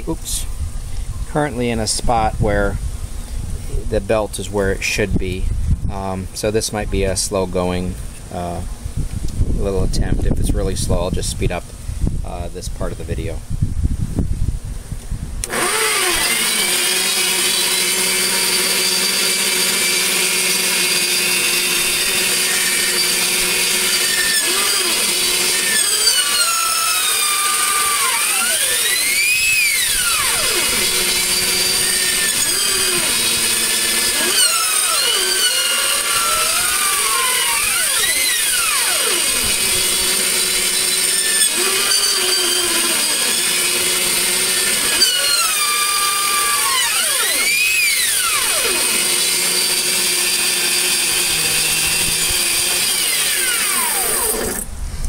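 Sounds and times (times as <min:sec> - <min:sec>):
band saw whining: 0:15.4 - 0:54.8.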